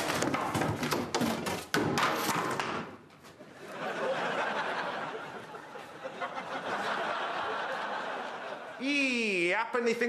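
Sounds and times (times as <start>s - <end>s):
studio audience laughing: 3.5s - 8.8s.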